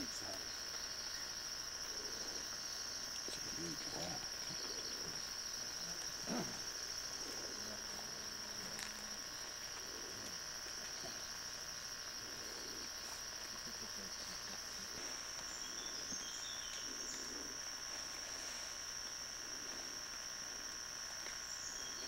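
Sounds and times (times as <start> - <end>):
faint steady hum: 0.0 - 22.0
high-pitched insect drone: 0.0 - 22.0.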